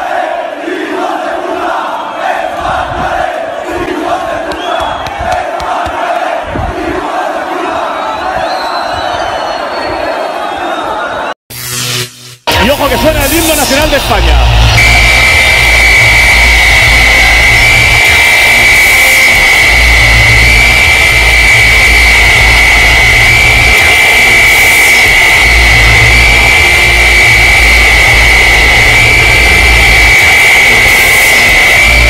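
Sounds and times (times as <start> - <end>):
high-pitched whistle-like tone: 8.1 - 10.2, 14.8 - 24.1
deep hum: 14.3 - 32.0.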